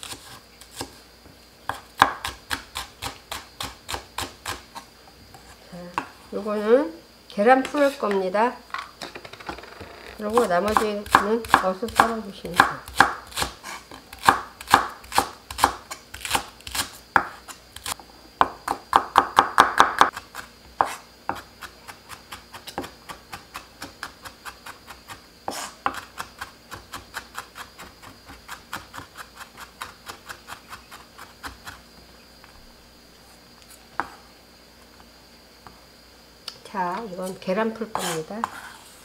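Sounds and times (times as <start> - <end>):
knife chopping on wooden board: 1.7 - 4.6, 10.3 - 20.2, 25.5 - 27.7.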